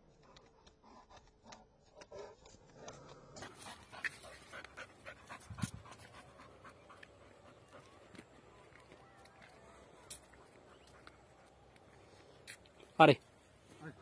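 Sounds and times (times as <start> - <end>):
dog panting: 0.1 - 8.5, 10.2 - 12.2
light clicks and scuffs: 2.4 - 13.0.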